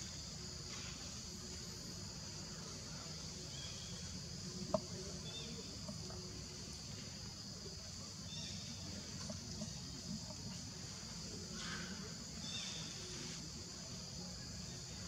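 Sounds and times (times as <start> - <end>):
insects droning: 0.0 - 15.0.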